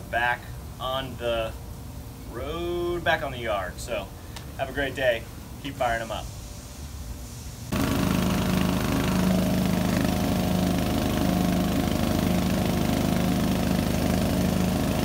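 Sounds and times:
riding lawn mower engine running: 0:07.7 - 0:15.0.

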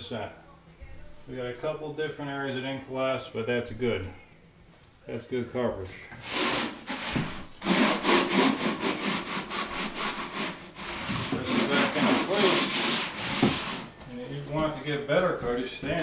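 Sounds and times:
float scraping plastic membrane: 0:06.2 - 0:13.9.

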